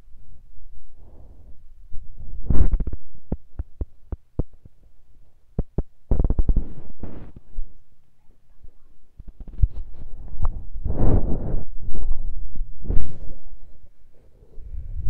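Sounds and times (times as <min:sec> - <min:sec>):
rustling noise: 0:00.0 - 0:07.9, 0:08.5 - 0:15.0.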